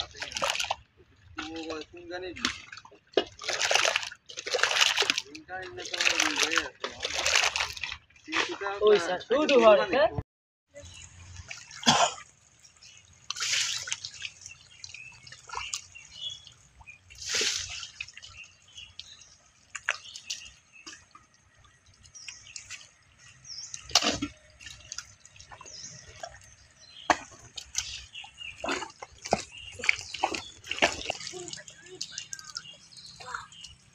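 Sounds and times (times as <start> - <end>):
squelching through wet mud: 0.0 - 9.2, 10.8 - 33.9
water drips: 0.0 - 9.6, 10.8 - 33.9
loud water splashes: 2.4 - 8.8, 10.8 - 20.6, 23.7 - 33.9.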